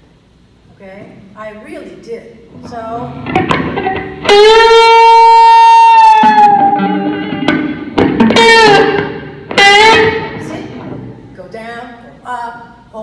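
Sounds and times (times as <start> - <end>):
electric guitar lead line: 2.4 - 11.4.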